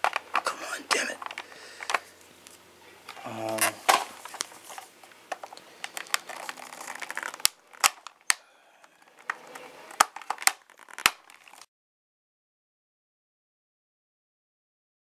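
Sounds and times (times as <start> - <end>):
plastic toy parts clicking: 1.2 - 2.0, 5.3 - 11.6.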